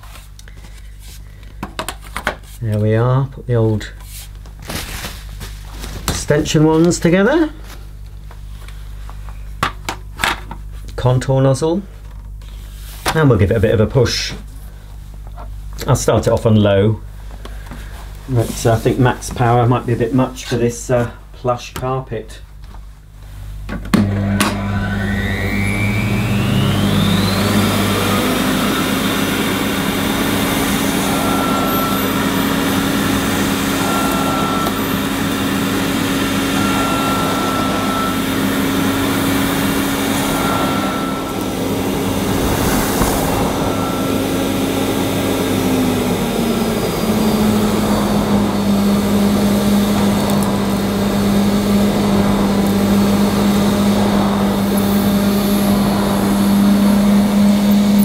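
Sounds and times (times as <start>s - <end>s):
vacuum cleaner motor whining: 10.0s - 21.2s, 23.6s - 58.0s
vacuum nozzle pushed over carpet: 24.0s - 58.0s.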